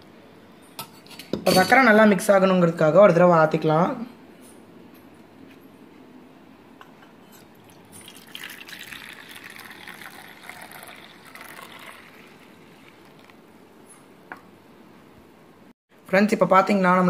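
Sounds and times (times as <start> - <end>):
coffee pouring and splashing: 7.4 - 13.6.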